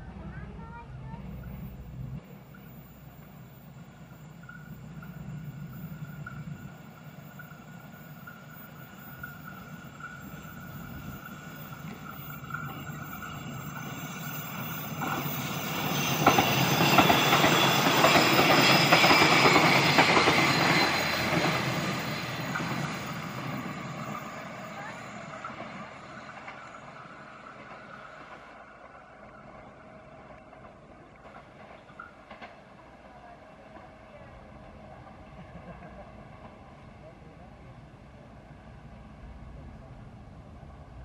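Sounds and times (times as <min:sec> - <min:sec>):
passenger train passing: 0:00.0 - 0:41.0
wheel squeal: 0:02.4 - 0:29.7
wheels clacking over rail joints: 0:02.4 - 0:36.7.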